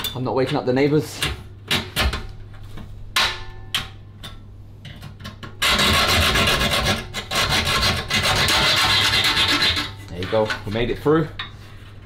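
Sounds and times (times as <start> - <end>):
hacksaw cutting metal: 5.6 - 10.5.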